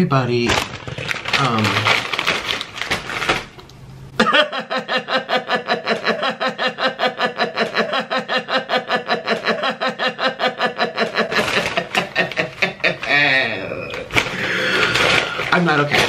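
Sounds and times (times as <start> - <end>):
man laughing: 4.2 - 14.0.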